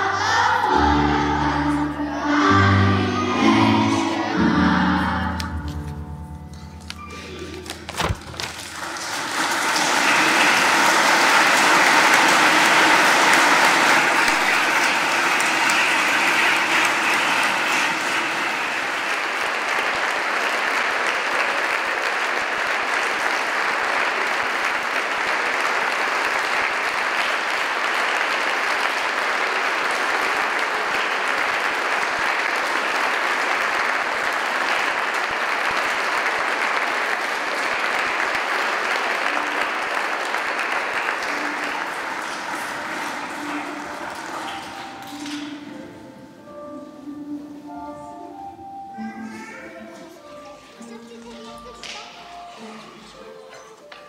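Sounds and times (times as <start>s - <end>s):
congregation applauding: 6.8s - 46.0s.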